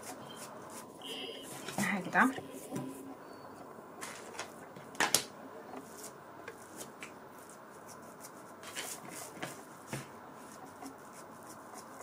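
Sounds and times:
hands rolling dough on a tabletop: 0:05.8 - 0:12.0.

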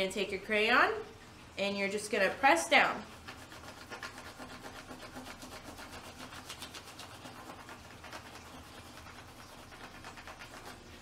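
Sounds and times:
crayon scratching on paper: 0:03.0 - 0:11.0.

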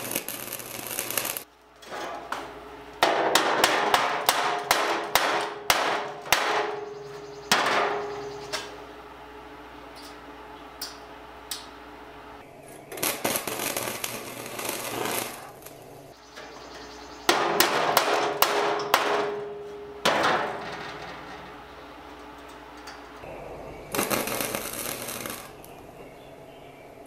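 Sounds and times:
welding arc crackling: 0:00.0 - 0:01.5, 0:09.8 - 0:16.2, 0:17.2 - 0:26.0.

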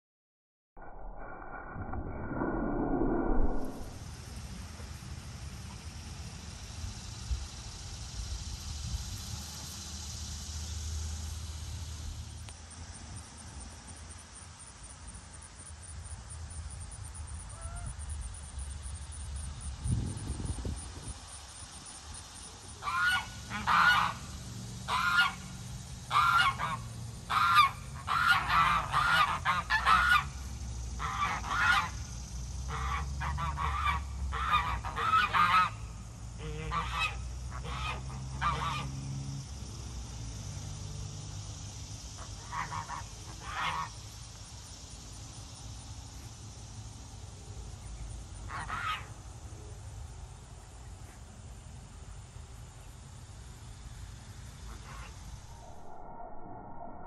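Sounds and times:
geese honking: 0:22.8 - 0:24.2, 0:26.1 - 0:30.3, 0:36.4 - 0:38.9.

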